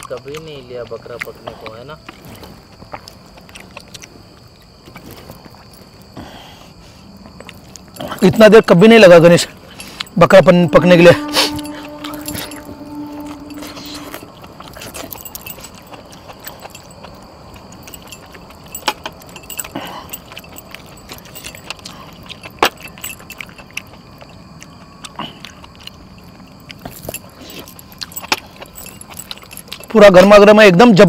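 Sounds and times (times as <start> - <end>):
metal bangles jangling: 7.8 - 24.5, 26.2 - 30.5.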